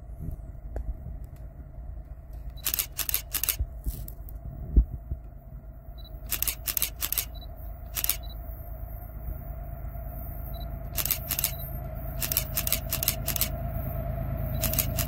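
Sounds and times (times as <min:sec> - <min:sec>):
faint hum: 0:00.0 - 0:15.0
low wind rumble: 0:00.0 - 0:15.0
handling clicks and rustles: 0:06.3 - 0:07.3, 0:10.9 - 0:11.6, 0:12.2 - 0:13.6, 0:14.5 - 0:15.0.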